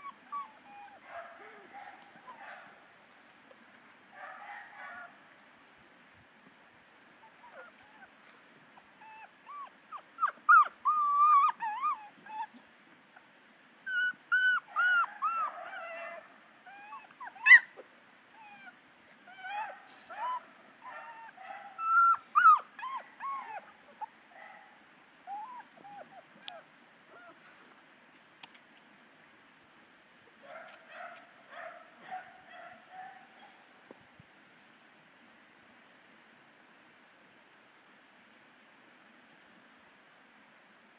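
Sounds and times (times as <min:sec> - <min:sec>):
puppies whimpering and yipping: 0:00.0 - 0:01.0, 0:02.1 - 0:02.5, 0:07.2 - 0:12.6, 0:13.8 - 0:17.8, 0:18.4 - 0:24.2, 0:25.3 - 0:27.4
light clicks and rustles: 0:19.8 - 0:20.8, 0:27.4 - 0:29.0.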